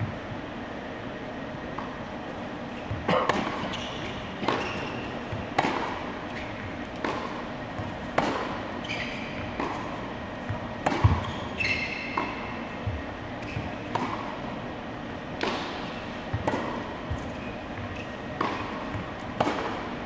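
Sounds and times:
racket hitting tennis ball: 3.0 - 11.3, 12.0 - 14.5, 15.1 - 20.0.

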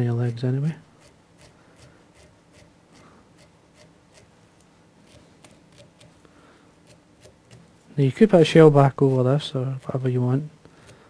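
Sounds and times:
brush scratching through fibres: 0.0 - 11.0.

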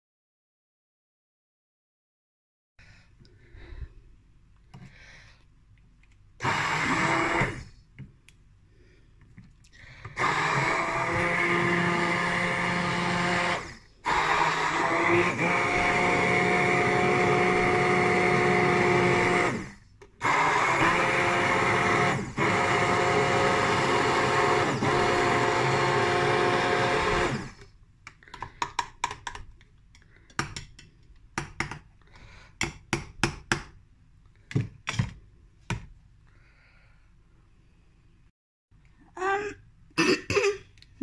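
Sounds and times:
immersion blender motor whine: 6.4 - 7.7, 10.1 - 27.7.

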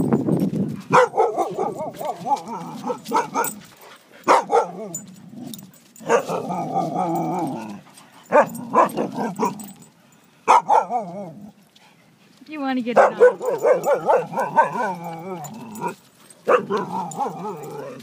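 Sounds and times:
dogs barking: 0.9 - 3.6, 4.2 - 5.0, 6.0 - 11.4, 12.9 - 18.0
dogs wavering calls: 0.9 - 11.6, 13.0 - 18.0.

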